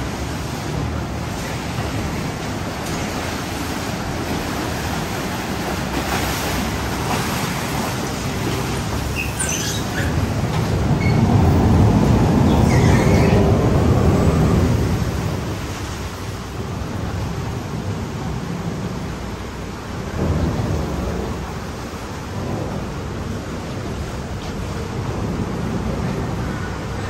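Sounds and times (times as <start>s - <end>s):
boat engine rumble: 0.0s - 27.0s
rushing water: 0.0s - 27.0s
wind buffeting microphone: 0.0s - 27.0s
short high squeaks: 9.1s - 10.2s.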